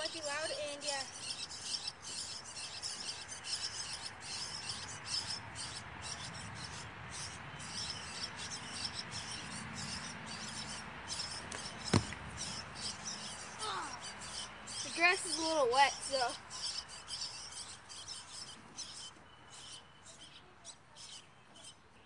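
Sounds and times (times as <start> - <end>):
person landing on wet grass: 11.5 - 12.2.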